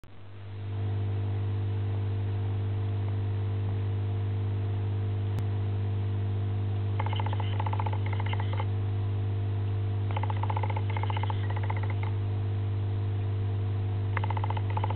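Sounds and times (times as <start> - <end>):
low hum with overtones: 0.0 - 14.9
rapid high-pitched chirping: 7.0 - 8.7, 10.1 - 12.1, 14.2 - 14.9.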